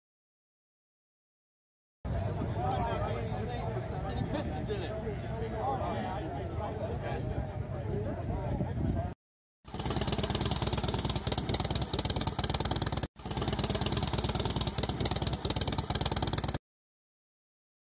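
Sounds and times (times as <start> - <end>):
motorcycle engine running: 9.7 - 16.6.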